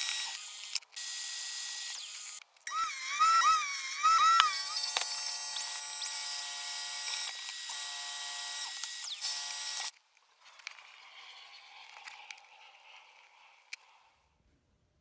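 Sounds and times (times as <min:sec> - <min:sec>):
drill press motor whine: 0:00.0 - 0:09.9.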